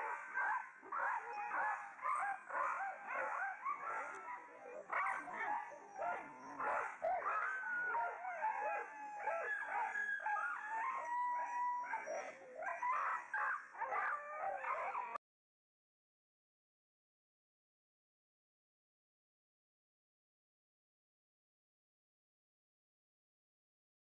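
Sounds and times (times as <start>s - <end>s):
dogs whining and howling: 0.0s - 15.2s.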